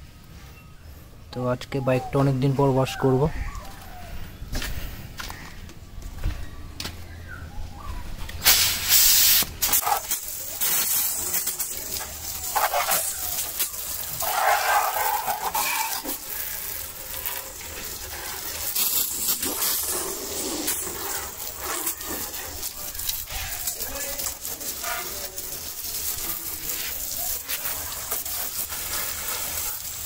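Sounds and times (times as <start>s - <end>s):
hose spray hissing and splashing: 8.3s - 30.0s.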